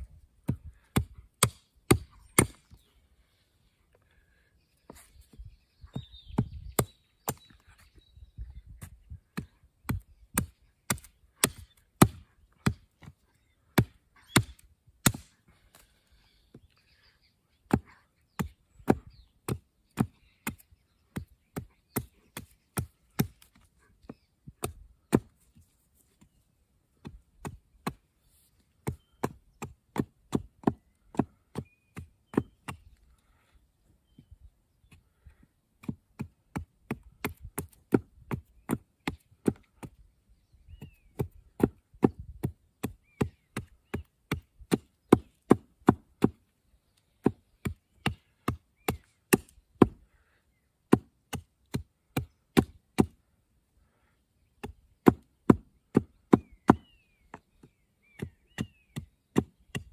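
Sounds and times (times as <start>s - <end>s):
hatchet chopping wood: 0.4s - 2.8s, 6.3s - 7.6s, 8.8s - 13.1s, 13.7s - 15.4s, 17.6s - 25.4s, 27.0s - 28.1s, 28.8s - 33.0s, 35.8s - 40.0s, 41.1s - 46.5s, 47.2s - 50.0s, 50.9s - 53.2s, 54.6s - 59.9s.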